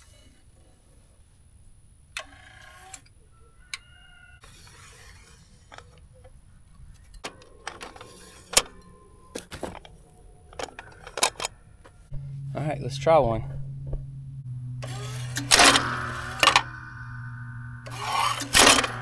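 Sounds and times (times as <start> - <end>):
brief tone: 10.3 - 19.0.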